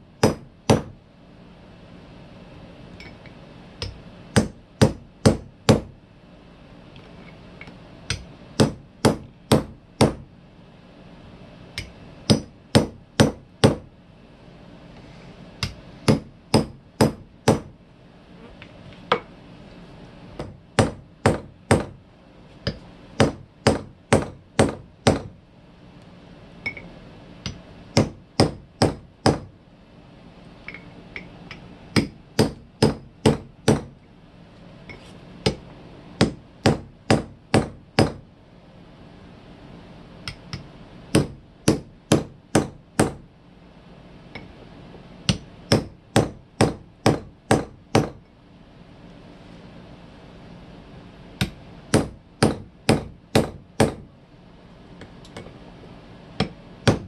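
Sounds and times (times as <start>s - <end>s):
hammer striking steel punch: 11.8s - 13.9s, 15.6s - 17.7s, 31.9s - 33.9s, 40.3s - 43.2s, 45.3s - 48.2s.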